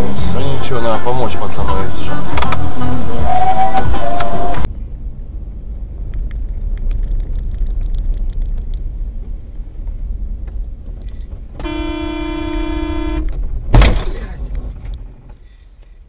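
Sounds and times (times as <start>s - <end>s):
car driving rumble: 0.0s - 16.0s
car horn: 2.4s - 4.7s, 11.6s - 13.4s
loud impact bang: 13.4s - 14.3s.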